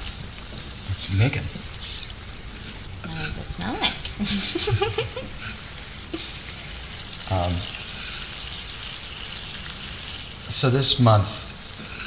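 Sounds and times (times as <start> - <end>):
food sizzling in a pan: 0.0 - 12.0.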